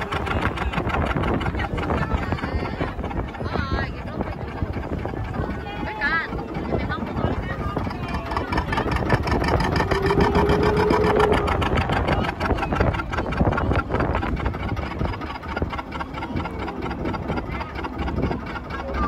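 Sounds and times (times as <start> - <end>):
motorboat engine pulsing: 0.0 - 19.0.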